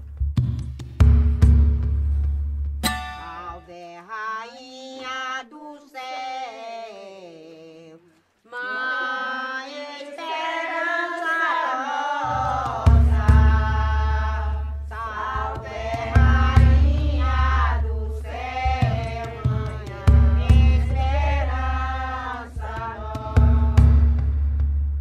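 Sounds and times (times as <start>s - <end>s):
sharp percussive hits: 0.0s - 3.8s, 12.2s - 25.0s
person singing folk melody: 3.1s - 24.1s.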